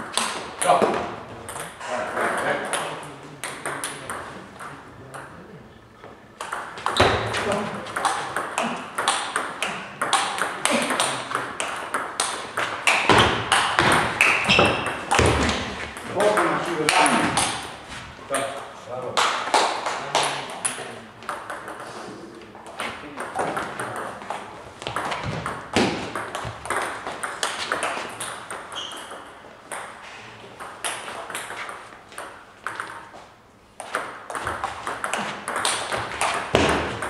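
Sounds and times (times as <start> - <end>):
table tennis ball clicking: 7.9 - 15.3, 33.8 - 37.0.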